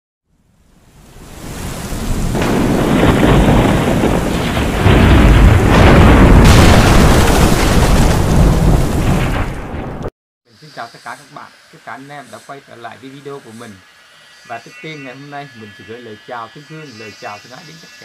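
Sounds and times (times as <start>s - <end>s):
heavy rain: 0.9s - 10.1s
rolling thunder: 1.4s - 10.1s.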